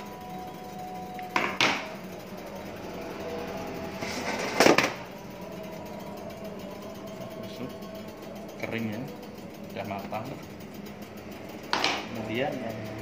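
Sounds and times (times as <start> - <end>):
oven humming: 0.0 - 13.0
baking tray scraping: 4.0 - 5.0.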